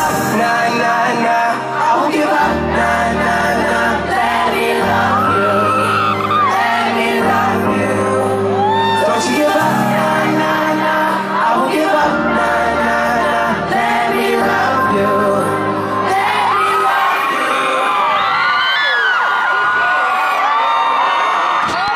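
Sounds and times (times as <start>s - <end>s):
person singing: 0.0s - 18.7s
live pop music: 0.0s - 21.9s
crowd shouting and whooping: 3.9s - 12.1s, 14.0s - 21.9s.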